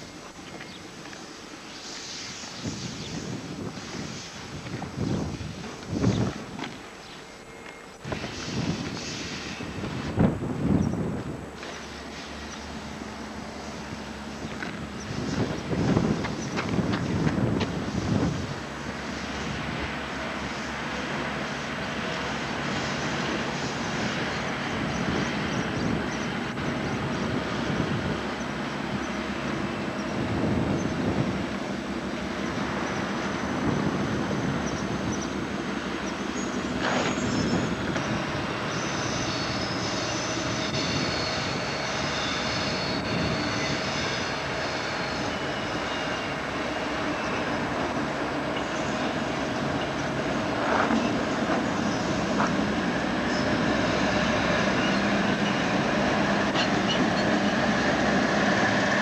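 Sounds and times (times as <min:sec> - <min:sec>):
diesel locomotive engine running: 0:00.0 - 0:59.0
wagons rumbling over rails: 0:00.0 - 0:59.0
high squealing tones: 0:36.4 - 0:47.7.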